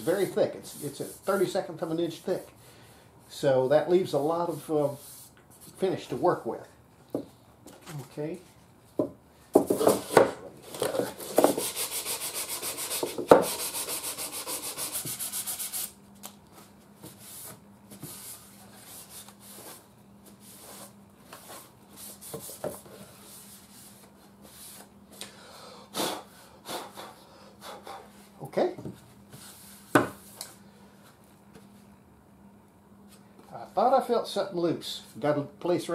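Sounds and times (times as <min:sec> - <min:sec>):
sanding wood back and forth: 0:11.2 - 0:16.0.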